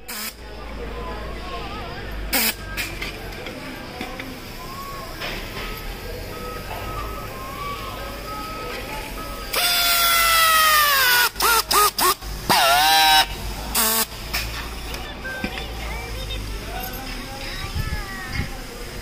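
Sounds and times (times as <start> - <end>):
pneumatic strapping tool whine: 2.3 - 2.9, 9.5 - 14.6.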